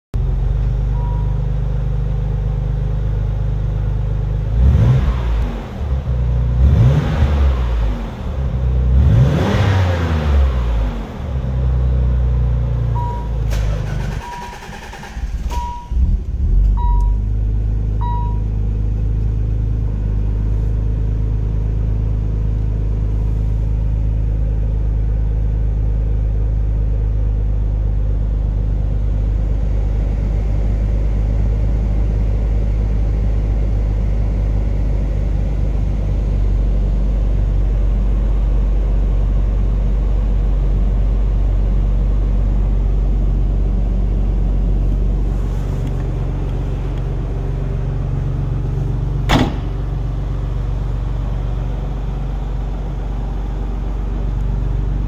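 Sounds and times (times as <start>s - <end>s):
car engine revving and idling: 0.1s - 55.0s
short high beeps: 13.0s - 14.8s, 15.4s - 16.0s, 16.8s - 17.2s, 18.0s - 18.5s.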